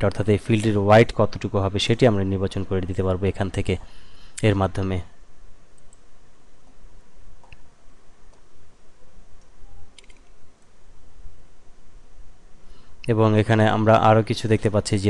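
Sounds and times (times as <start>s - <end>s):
low background hum: 0.0s - 15.0s
computer mouse clicks: 5.7s - 6.8s, 7.4s - 7.7s, 9.4s - 10.7s.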